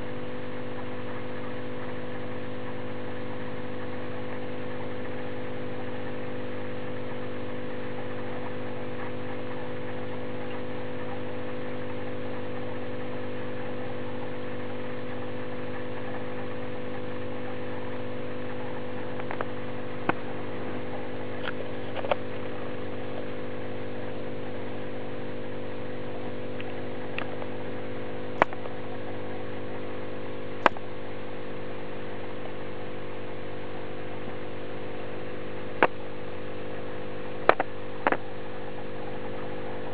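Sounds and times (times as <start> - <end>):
aquarium equipment electrical hum: 0.0 - 39.9
short sharp clicks: 30.6 - 30.8.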